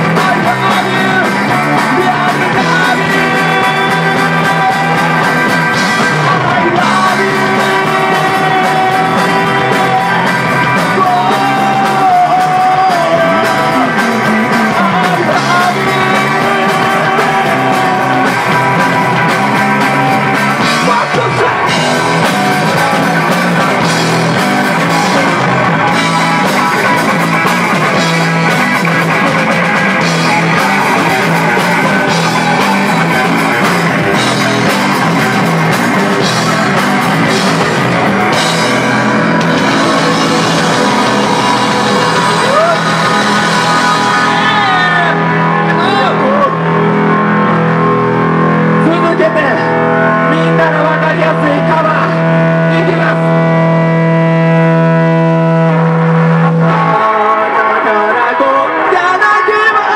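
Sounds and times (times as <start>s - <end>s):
man singing: 0.0s - 46.8s, 48.8s - 59.9s
bass guitar: 0.0s - 59.9s
drums: 0.0s - 59.9s
electric guitar: 0.0s - 59.9s.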